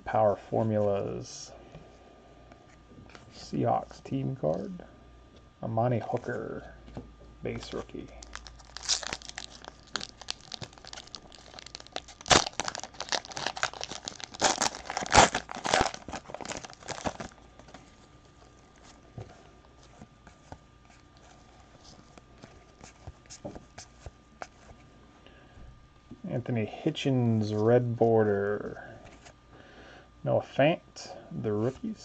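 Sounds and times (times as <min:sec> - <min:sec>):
foil wrapper crinkling and tearing: 0:08.2 - 0:17.7.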